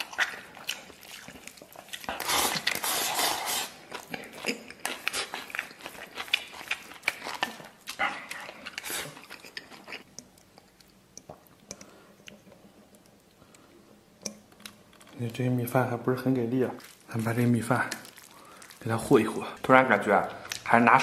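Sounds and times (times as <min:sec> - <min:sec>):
person sucking and chewing: 0:00.0 - 0:13.7, 0:17.9 - 0:18.9.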